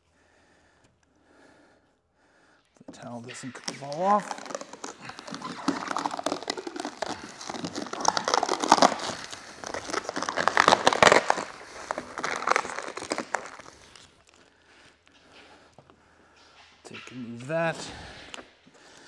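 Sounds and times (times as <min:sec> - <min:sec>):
plastic film peeling and crinkling: 0:02.9 - 0:14.5.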